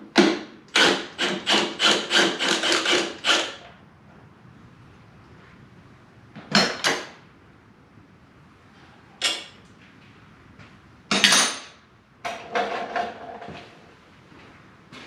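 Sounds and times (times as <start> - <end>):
impact wrench hammering: 0.1 - 3.6.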